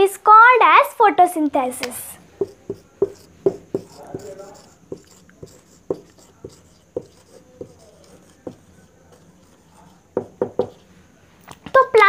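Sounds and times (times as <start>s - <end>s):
marker squeaking on whiteboard: 2.3s - 10.9s.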